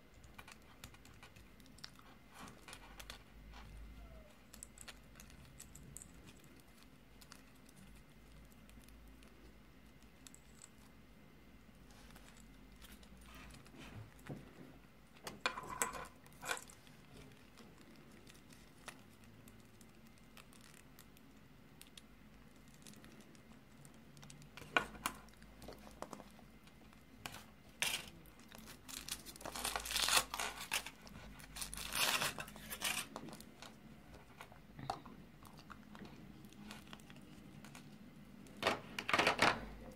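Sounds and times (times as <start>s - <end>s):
foil wrapper crinkling and tearing: 27.2s - 33.8s.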